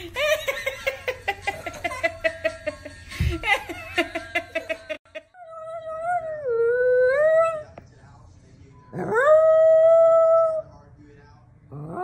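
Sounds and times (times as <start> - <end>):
woman laughing: 0.0 - 5.4.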